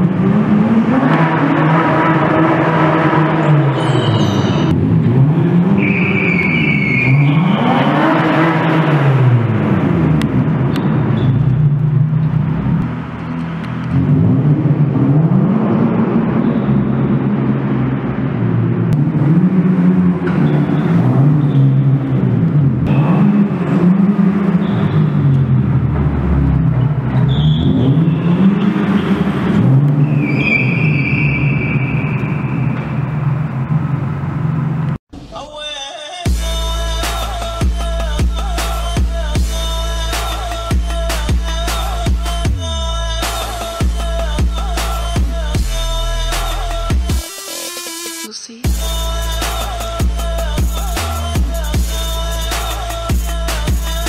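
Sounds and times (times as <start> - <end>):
car engine revving: 0.0 - 35.0, 36.3 - 47.3, 48.7 - 54.0
tyre squeals: 3.4 - 4.8, 5.8 - 8.2, 27.1 - 29.4, 30.0 - 33.1.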